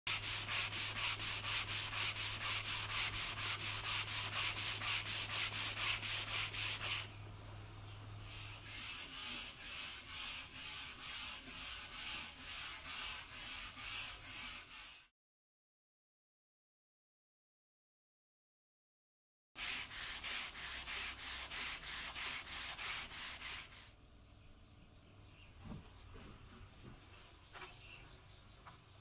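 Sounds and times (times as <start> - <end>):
sandpaper rubbing on wood: 0.1 - 7.1, 8.2 - 15.1, 19.6 - 23.9.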